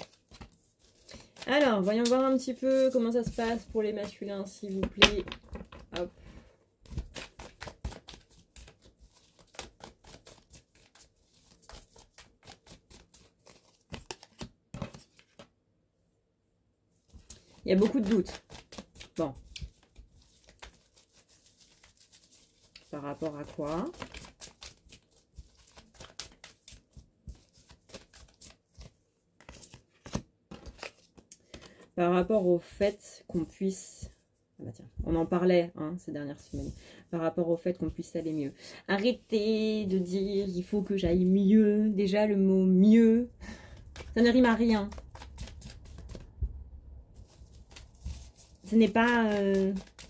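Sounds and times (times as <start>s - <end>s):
cards being shuffled: 0.0s - 6.1s, 6.8s - 15.5s, 17.1s - 31.9s, 37.9s - 38.4s, 43.5s - 46.4s, 47.2s - 50.0s.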